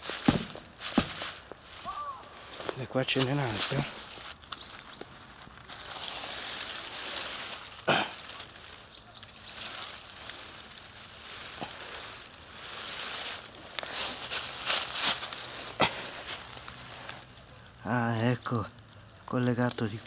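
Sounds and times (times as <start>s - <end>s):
footsteps crunching dry leaves: 0.0s - 20.0s.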